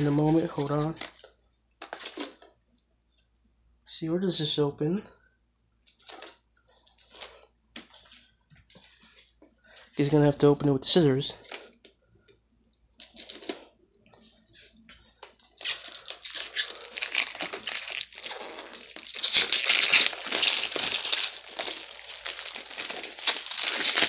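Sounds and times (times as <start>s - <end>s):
plastic shrink-wrap crinkling and tearing: 0.0s - 1.2s, 15.4s - 24.0s.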